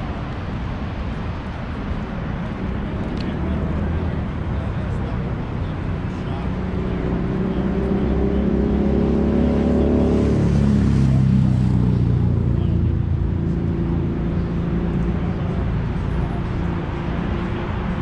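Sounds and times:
road traffic engines droning: 0:00.0 - 0:18.0.

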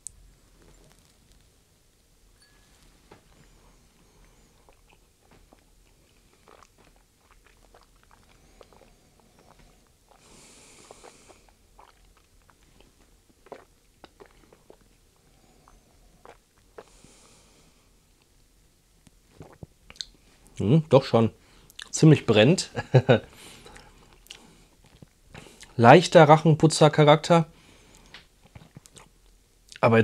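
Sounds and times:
person breathing: 0:08.3 - 0:11.6, 0:16.8 - 0:18.1, 0:23.3 - 0:25.7, 0:27.5 - 0:28.2
wet mouth clicks and smacks: 0:13.4 - 0:14.9, 0:19.4 - 0:20.2, 0:28.0 - 0:29.8.

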